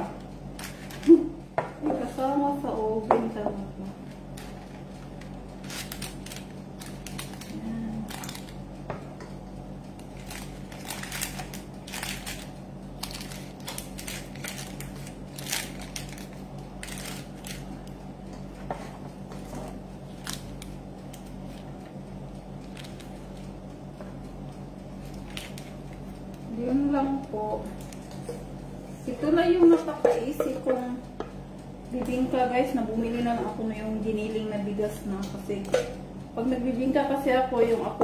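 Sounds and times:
steady low hum: 0:00.0 - 0:38.0
baking paper crinkling: 0:00.6 - 0:01.3, 0:04.2 - 0:08.6, 0:10.0 - 0:18.0, 0:19.4 - 0:21.8, 0:22.6 - 0:23.6, 0:24.9 - 0:26.4.

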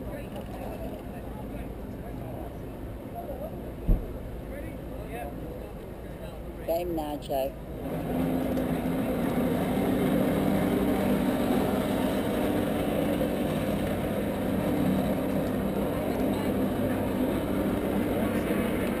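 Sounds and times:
jet ski engine running: 0:07.7 - 0:19.0.

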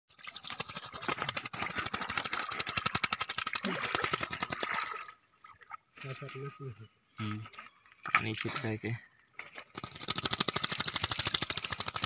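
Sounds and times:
bird splashing wings in water: 0:00.1 - 0:05.2, 0:09.7 - 0:12.0.

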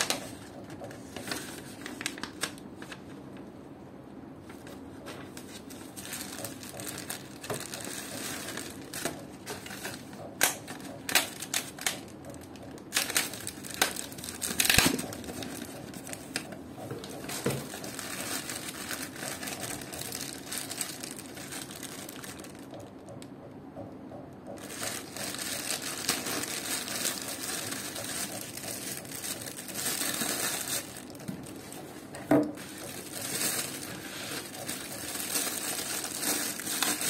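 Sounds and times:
plastic bag crinkling: 0:00.0 - 0:03.1, 0:04.7 - 0:23.0, 0:24.6 - 0:37.0.

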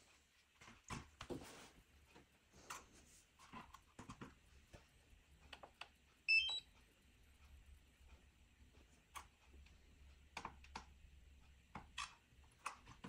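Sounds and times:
short electronic beeps: 0:06.3 - 0:06.7.

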